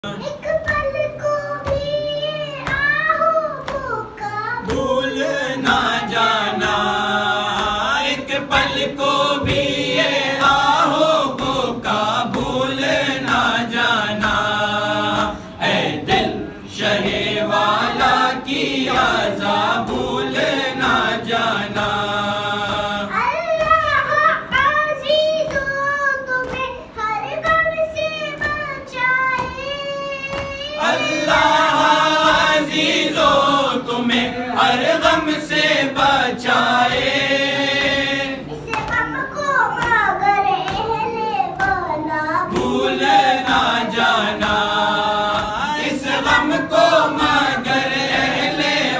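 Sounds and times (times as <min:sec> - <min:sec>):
boy singing into a microphone: 0:00.0 - 0:06.6, 0:23.0 - 0:32.5, 0:38.4 - 0:42.7
men singing together: 0:04.6 - 0:23.1, 0:30.8 - 0:38.5, 0:42.5 - 0:48.9.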